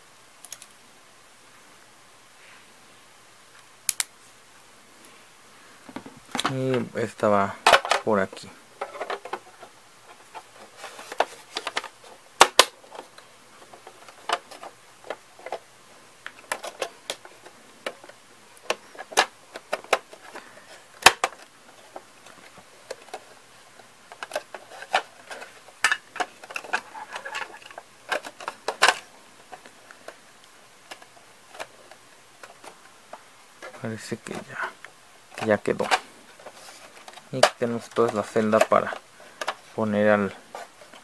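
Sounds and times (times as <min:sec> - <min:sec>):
plastic toy parts clicking and rattling: 0:07.6 - 0:08.2, 0:08.8 - 0:15.6, 0:16.2 - 0:23.4, 0:24.1 - 0:30.2, 0:30.9 - 0:32.8, 0:35.3 - 0:41.0.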